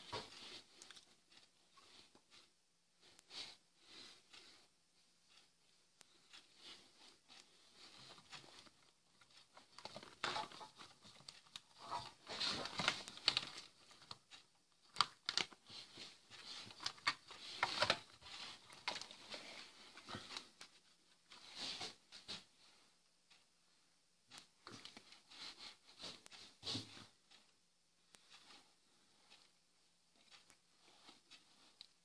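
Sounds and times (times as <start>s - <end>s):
plastic parts rustling and clicking: 8.1s - 20.8s.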